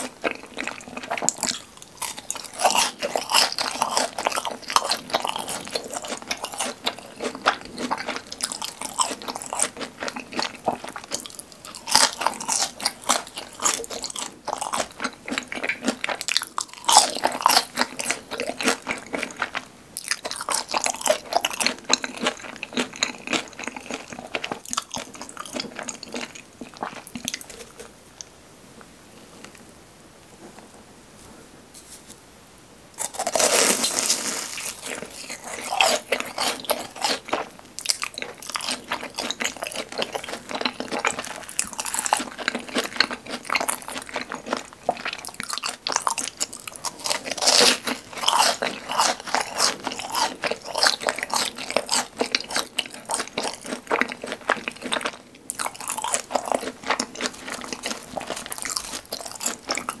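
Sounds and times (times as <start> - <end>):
crunchy chewing: 0.0 - 28.3, 33.0 - 60.0
loud bite crunch: 33.0 - 60.0.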